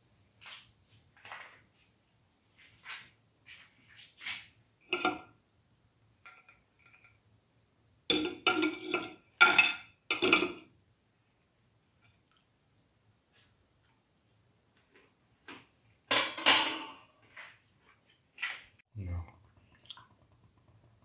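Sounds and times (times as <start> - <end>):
metal utensils and dishes clattering: 4.9 - 5.3, 8.1 - 10.7, 16.1 - 17.1.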